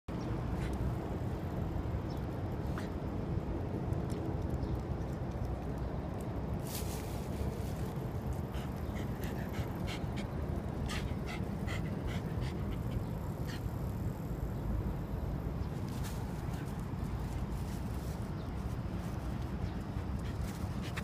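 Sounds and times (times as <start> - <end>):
dog panting: 8.4 - 13.8.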